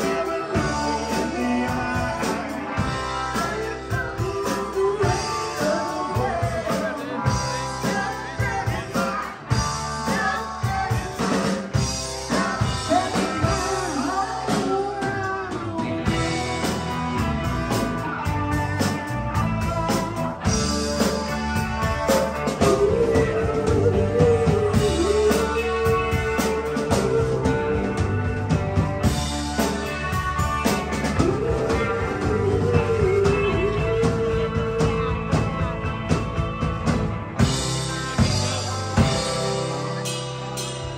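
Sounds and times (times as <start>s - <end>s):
drum kit: 0.0s - 40.9s
electric guitars: 0.0s - 40.9s
woman singing into a microphone: 22.6s - 28.2s, 31.1s - 35.1s.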